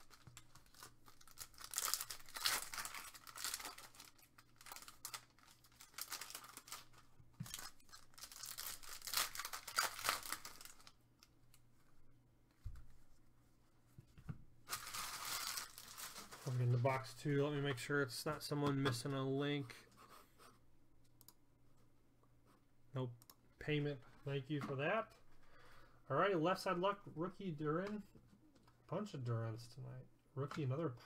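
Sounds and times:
foil wrapper tearing and crinkling: 0:00.0 - 0:11.0, 0:14.7 - 0:16.5.

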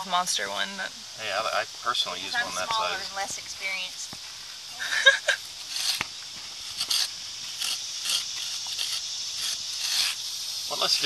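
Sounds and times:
trowel scraping soil: 0:04.9 - 0:11.0.

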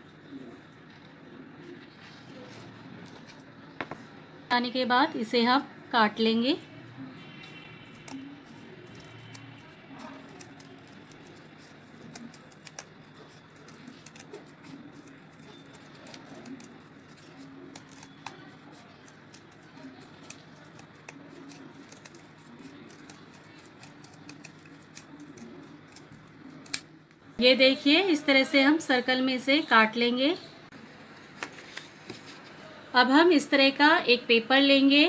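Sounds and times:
scissors cutting cardboard: 0:07.9 - 0:26.8.

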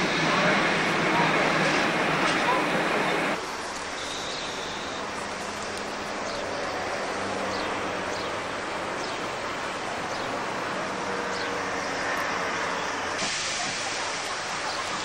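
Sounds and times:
steam locomotive hissing: 0:00.0 - 0:03.4, 0:11.1 - 0:15.0
rushing steam hiss: 0:00.0 - 0:05.3, 0:11.1 - 0:15.0.

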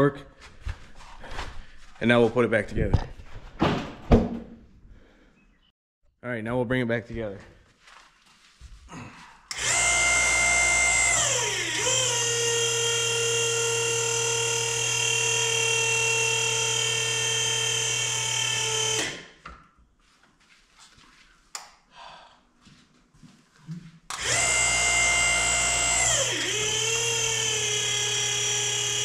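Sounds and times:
hydraulic pump whine: 0:09.5 - 0:19.3, 0:24.1 - 0:29.0.

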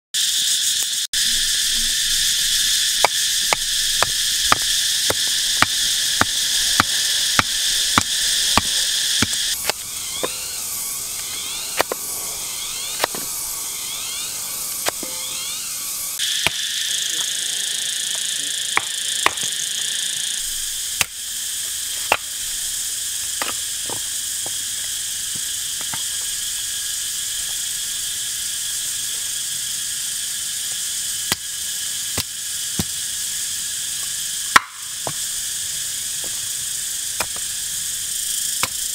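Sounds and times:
forest insects droning: 0:00.2 - 0:38.9
warbling trill: 0:05.4 - 0:16.2.

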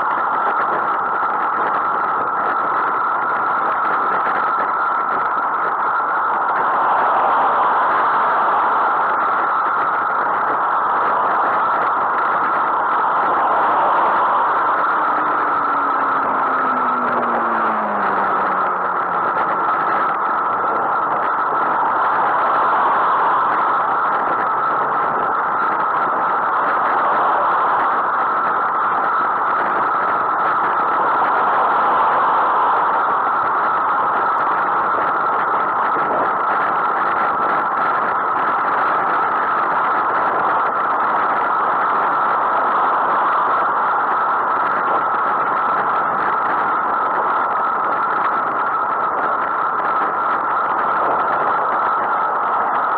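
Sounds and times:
road noise from bicycle: 0:00.0 - 0:52.9
rushing wind: 0:00.0 - 0:52.9
traffic passing: 0:04.4 - 0:46.2.

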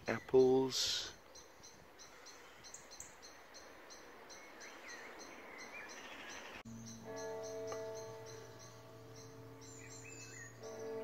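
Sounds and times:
distant church bells ringing: 0:06.7 - 0:11.0.

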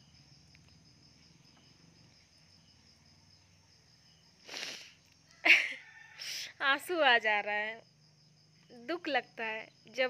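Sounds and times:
insects chirring: 0:00.0 - 0:10.0
woman sniffing: 0:04.4 - 0:05.0
woman's breathy laugh: 0:04.5 - 0:06.5.

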